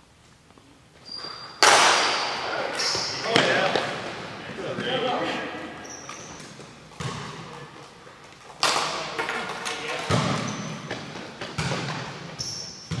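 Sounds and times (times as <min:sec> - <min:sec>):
sharp knocks echoing in a gym: 0:01.4 - 0:04.3, 0:06.1 - 0:07.8, 0:08.6 - 0:13.0.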